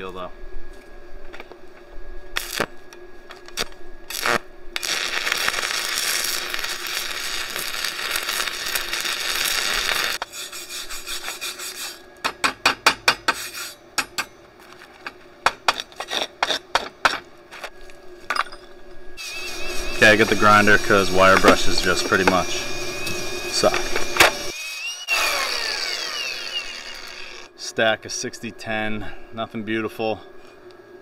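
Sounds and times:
welding arc crackling: 2.4 - 2.8, 3.4 - 10.2, 19.2 - 27.5
wire brush scrubbing metal: 9.9 - 12.1, 13.1 - 13.8, 19.2 - 22.6.

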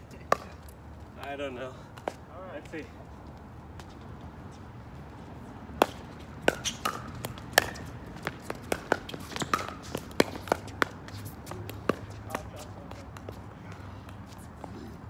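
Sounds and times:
ball bouncing on hard court: 5.8 - 13.4.

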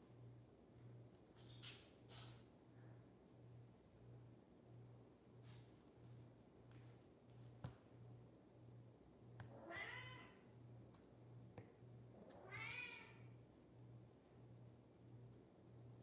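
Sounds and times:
cat meowing: 9.6 - 10.4, 12.4 - 13.2.

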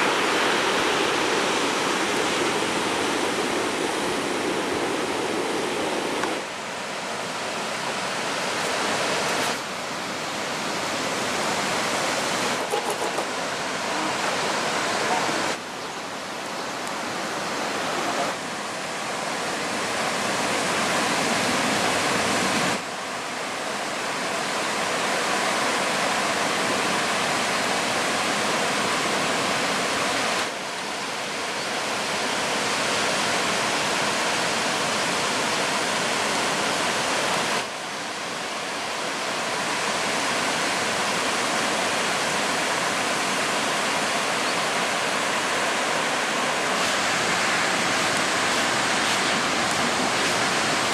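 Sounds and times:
ocean surf breaking: 0.0 - 50.9.

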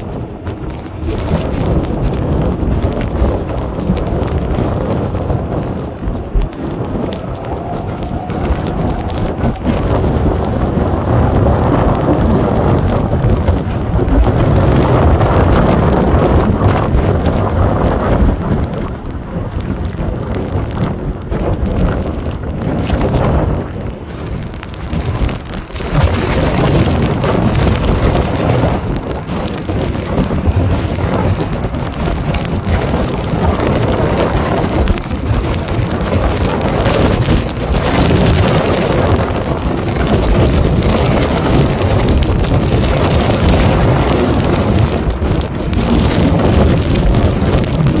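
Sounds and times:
jet engines rumbling: 0.0 - 48.0
wind buffeting microphone: 0.0 - 48.0.

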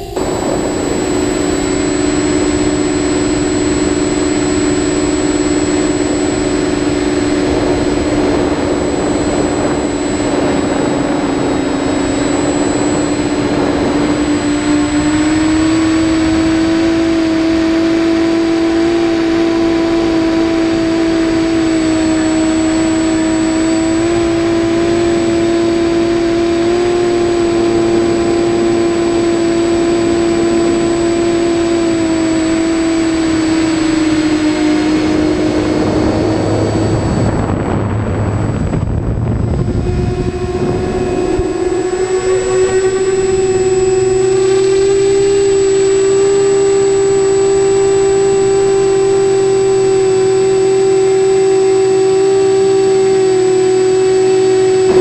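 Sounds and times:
drone motors whining: 0.0 - 55.0.

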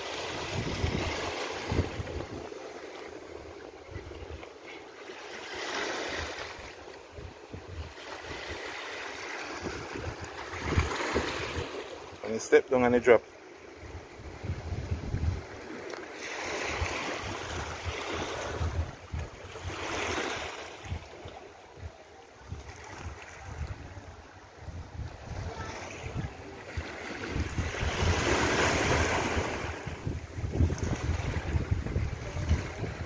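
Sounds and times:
sea waves washing against rocks: 0.0 - 21.9, 22.5 - 33.0
wind buffeting microphone: 0.3 - 2.6, 9.6 - 11.7, 13.8 - 15.7, 16.6 - 33.0.

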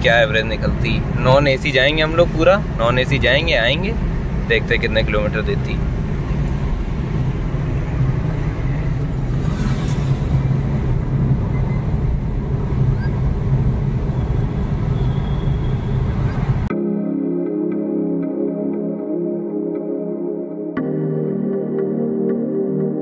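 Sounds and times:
car engine and road rumble: 0.0 - 16.7.

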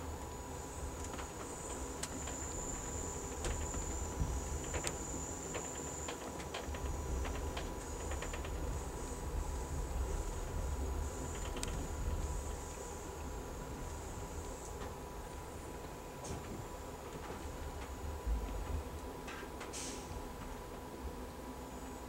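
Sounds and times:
high-pitched hiss: 0.0 - 17.0, 19.2 - 20.3
train rumbling: 0.0 - 22.0.

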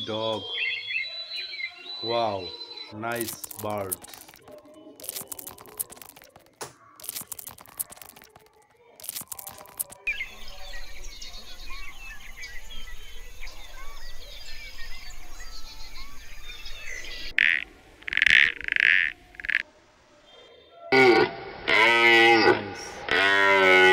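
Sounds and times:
loud bird calls: 0.0 - 19.6
small birds chirping: 0.0 - 19.6
rustling and clicking: 3.1 - 10.1.

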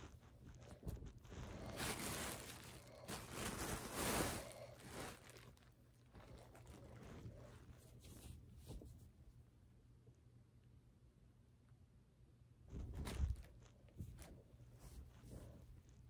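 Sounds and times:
clothing rustling: 0.0 - 9.2, 12.7 - 16.0.

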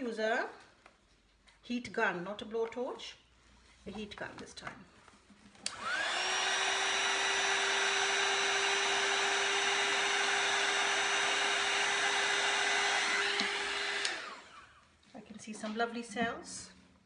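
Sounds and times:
heat gun blowing air: 5.7 - 14.8.

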